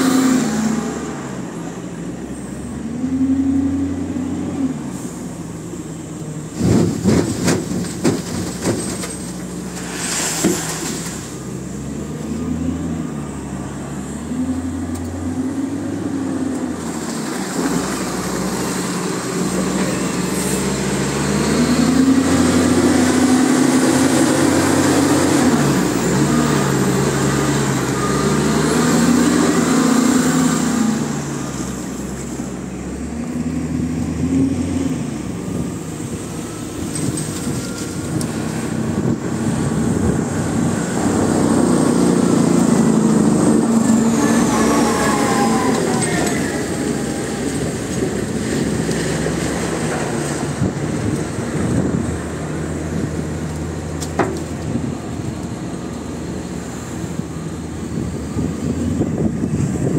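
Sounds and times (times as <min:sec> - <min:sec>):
wheel loader diesel engine: 0:00.0 - 0:59.9
sand dropping into steel body: 0:06.6 - 0:11.4.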